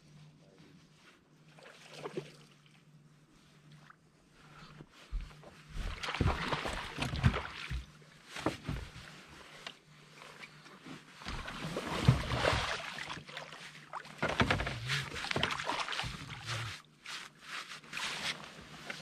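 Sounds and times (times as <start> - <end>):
water splashing: 6.0 - 7.8, 11.5 - 14.2, 15.1 - 16.7.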